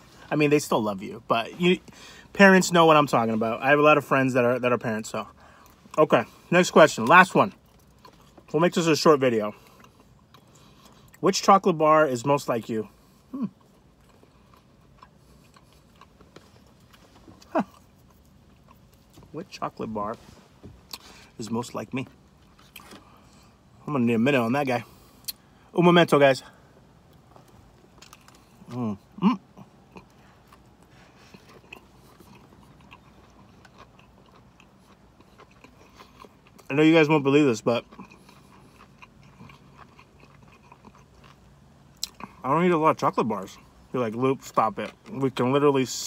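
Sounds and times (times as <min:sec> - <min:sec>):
person chewing: 0:05.2 - 0:08.5, 0:09.5 - 0:11.2, 0:12.9 - 0:20.2, 0:22.0 - 0:23.8, 0:27.0 - 0:42.4.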